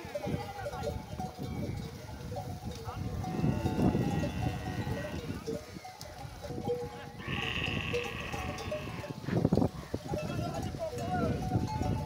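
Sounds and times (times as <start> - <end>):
low rumble of herd: 0.0 - 12.0
camels calling: 1.5 - 10.0.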